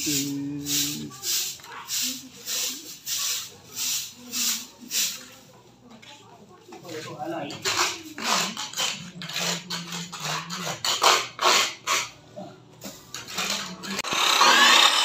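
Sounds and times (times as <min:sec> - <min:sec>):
cut-off saw grinding metal: 0:13.3 - 0:15.0.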